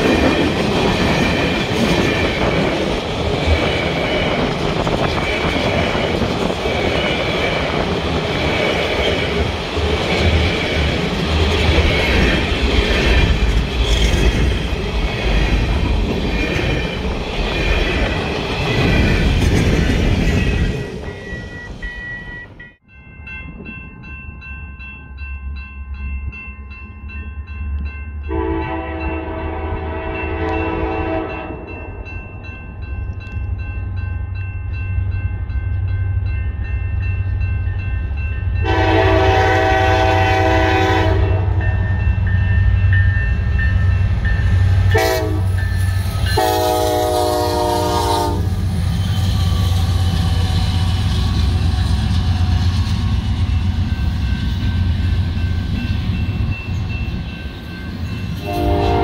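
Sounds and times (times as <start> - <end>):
crossing bell ringing: 9.2 - 59.0
locomotive horn blasts: 28.3 - 31.7, 38.6 - 41.6, 44.9 - 45.6, 46.3 - 48.5, 58.4 - 59.0.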